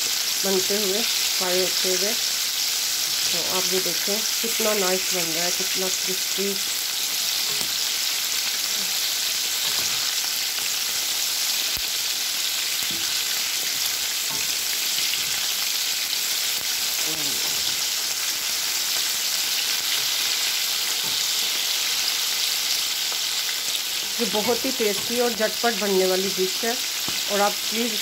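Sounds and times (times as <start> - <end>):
chicken deep-frying sizzle: 0.0 - 28.0.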